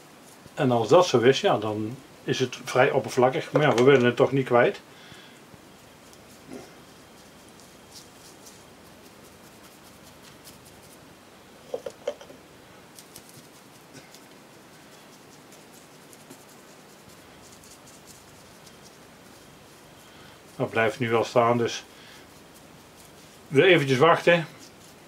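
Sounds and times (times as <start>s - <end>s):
paintbrush scratching wood: 5.7s - 11.0s, 13.0s - 25.0s.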